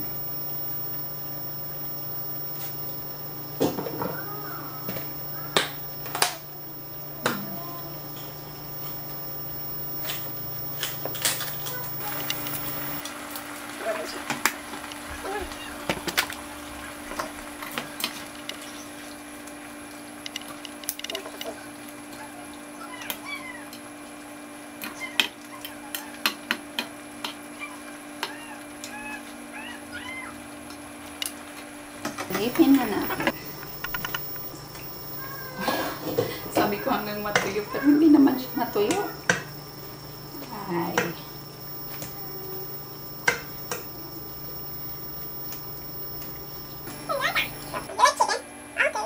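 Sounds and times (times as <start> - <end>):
steady low hum: 0.0 - 13.0, 32.2 - 48.0.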